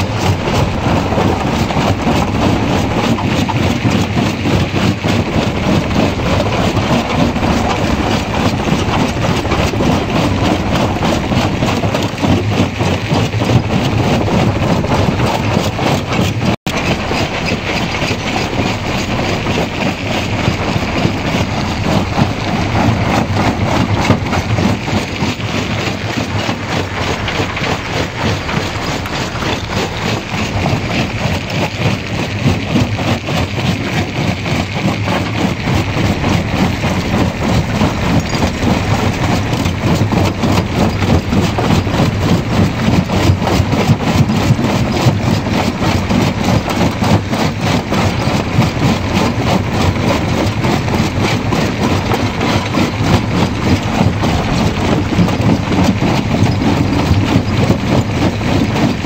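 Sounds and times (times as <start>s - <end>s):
rock crusher rumbling: 0.0s - 59.0s.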